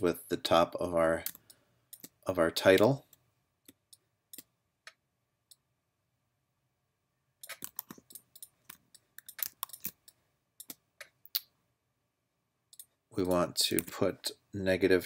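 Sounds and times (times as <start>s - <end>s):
computer mouse and keyboard clicking: 1.2s - 2.9s, 7.4s - 11.5s, 12.7s - 14.0s.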